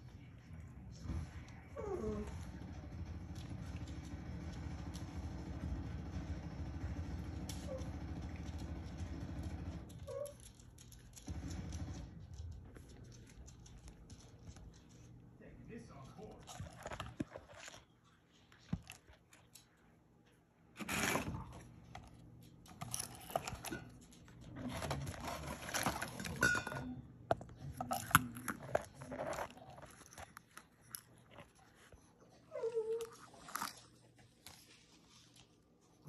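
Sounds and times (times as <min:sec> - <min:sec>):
dog whining: 0:01.6 - 0:02.6, 0:07.5 - 0:08.2, 0:09.9 - 0:10.6, 0:32.2 - 0:34.0
dog crunching kibble: 0:07.3 - 0:36.0.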